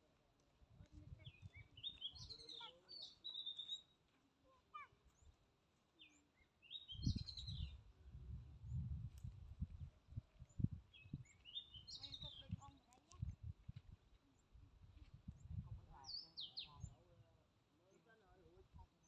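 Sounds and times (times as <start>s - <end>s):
birds chirping: 1.2s - 4.0s, 6.0s - 7.8s, 10.4s - 13.1s, 15.3s - 17.0s.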